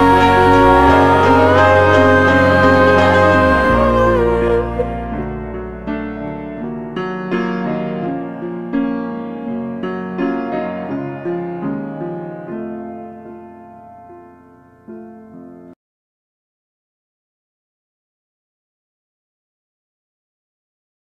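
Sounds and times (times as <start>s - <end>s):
slow piano music: 0.0s - 15.8s.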